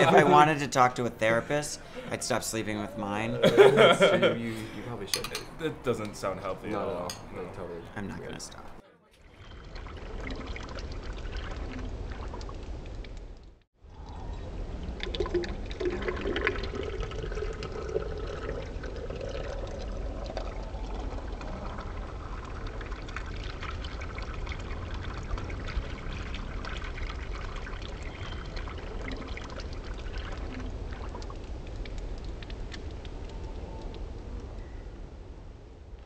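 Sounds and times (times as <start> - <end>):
sparkling drink fizzing: 0.0 - 13.2, 14.3 - 33.3
drink pouring into glass: 14.8 - 30.4.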